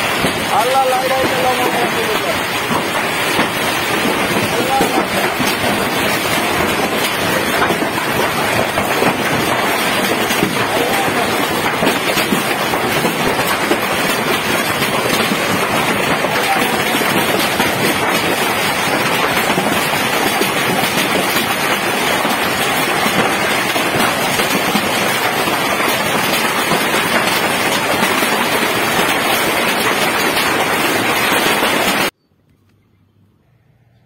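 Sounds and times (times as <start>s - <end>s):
hail and rain pelting on roof: 0.0s - 32.1s.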